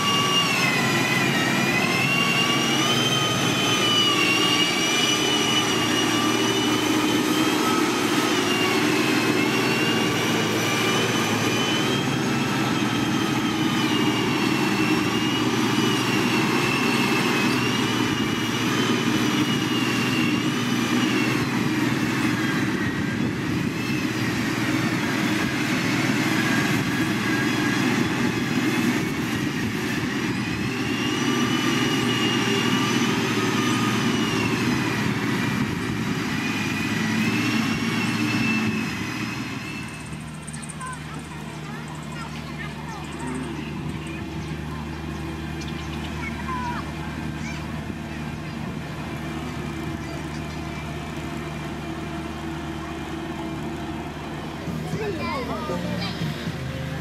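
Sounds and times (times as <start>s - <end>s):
diesel engine under load: 0.0s - 57.0s
high whine: 0.0s - 57.0s.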